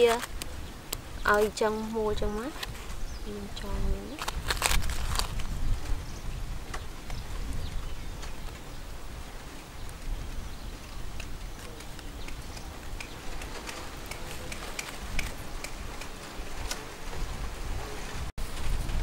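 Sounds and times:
dry leaves and string crackling: 0:00.0 - 0:08.7, 0:11.1 - 0:19.0.

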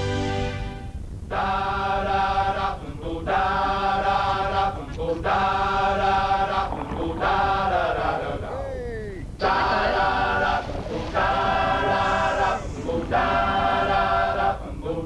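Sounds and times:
voices chanting held chords: 0:01.3 - 0:15.0.

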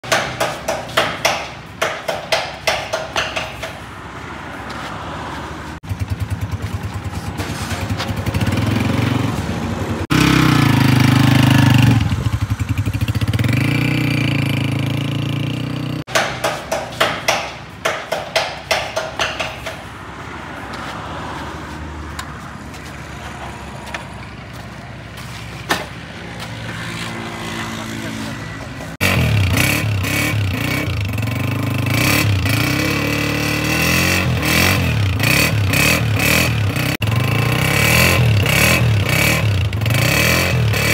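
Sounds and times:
motorcycle engine running: 0:05.8 - 0:16.0, 0:26.4 - 0:40.9.

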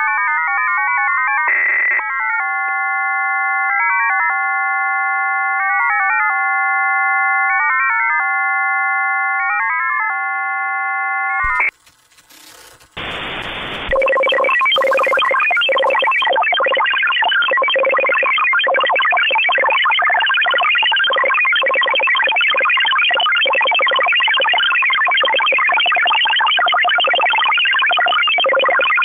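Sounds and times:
warbling radio tones: 0:11.4 - 0:17.4
fast-warbling radio signal: 0:11.5 - 0:11.7, 0:12.3 - 0:17.0
buzzy hiss burst: 0:11.5 - 0:13.9
radio hiss: 0:11.5 - 0:16.3.

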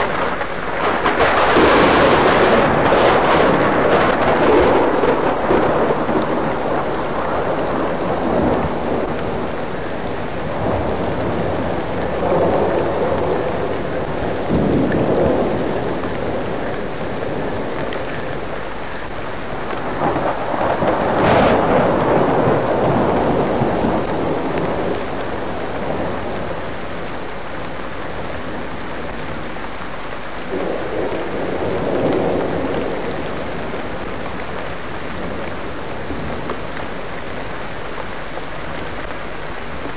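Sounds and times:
thunder rolling: 0:00.0 - 0:18.5, 0:19.6 - 0:26.6
rain falling: 0:00.0 - 0:39.9.

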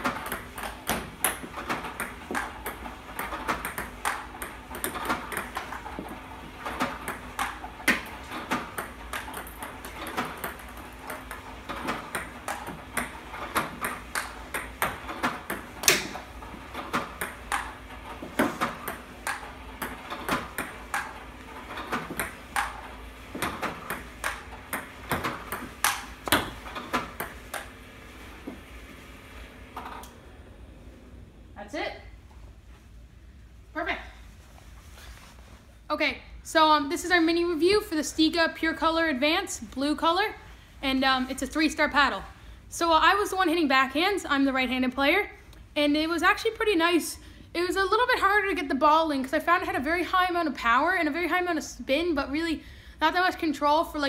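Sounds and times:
ping pong ball bouncing on table: 0:00.0 - 0:05.7, 0:18.4 - 0:21.2, 0:21.9 - 0:22.8, 0:23.4 - 0:27.7
ping pong ball clicking off paddle: 0:23.4 - 0:27.7.

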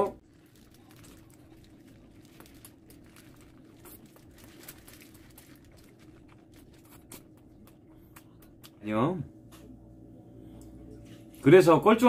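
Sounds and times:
paper wrapper crinkling: 0:00.0 - 0:07.8
steady low hum: 0:00.0 - 0:12.0
person chewing food: 0:00.2 - 0:08.8.

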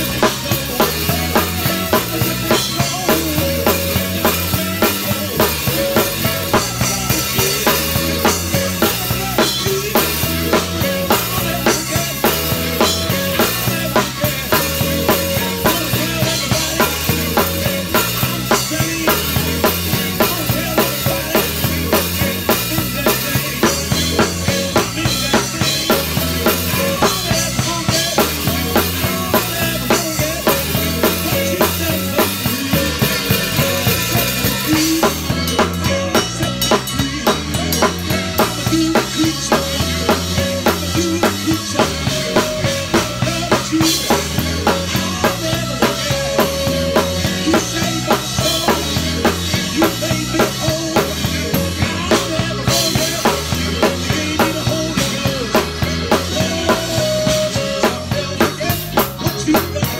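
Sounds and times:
bass guitar line: 0:00.0 - 0:59.9
drum kit beat: 0:00.0 - 0:59.9.

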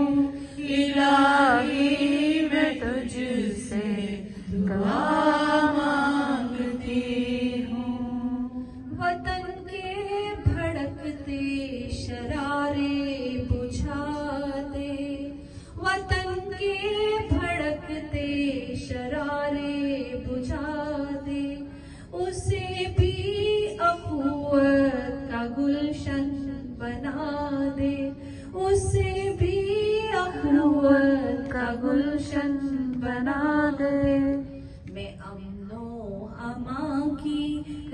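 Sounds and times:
women chanting devotional recitation: 0:00.0 - 0:37.9.

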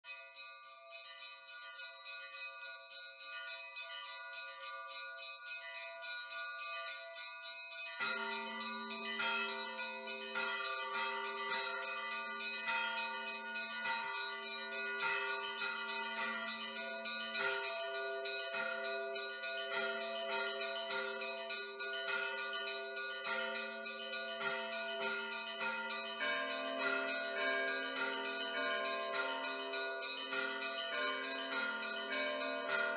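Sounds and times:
high church bells ringing: 0:00.1 - 0:32.9
deep bells ringing: 0:07.9 - 0:32.9.

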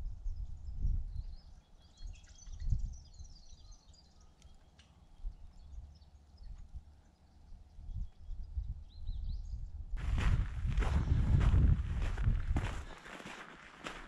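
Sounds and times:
wind buffeting microphone: 0:00.0 - 0:03.4, 0:07.6 - 0:14.0
small birds chirping: 0:00.0 - 0:14.0.

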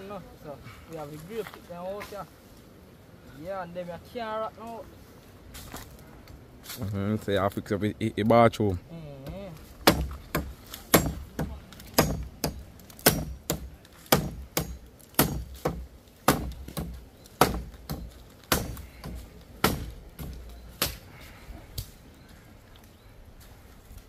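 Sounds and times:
hand tool striking blows: 0:09.3 - 0:21.0.

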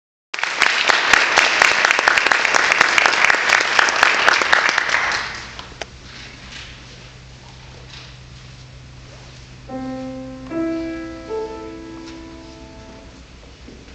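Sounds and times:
audience applauding: 0:00.4 - 0:05.7.

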